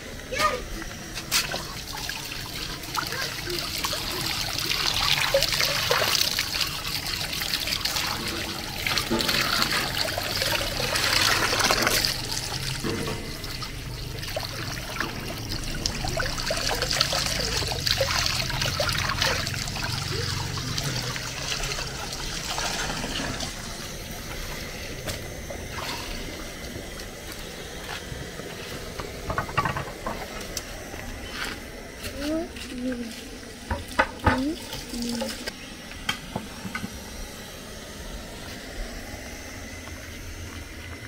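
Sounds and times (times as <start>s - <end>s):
tap water splashing: 7.6s - 13.6s, 29.0s - 30.7s, 33.7s - 36.9s.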